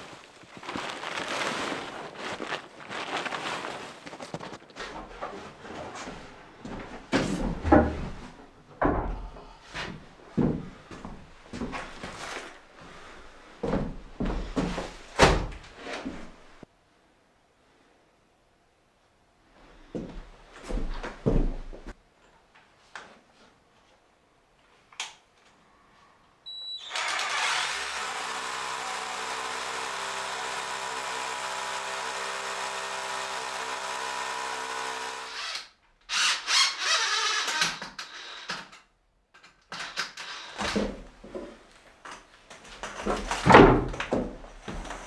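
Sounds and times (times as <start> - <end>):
rustling and scraping: 0.0 - 8.5, 9.7 - 13.1
electric drill boring into stone: 26.8 - 37.2.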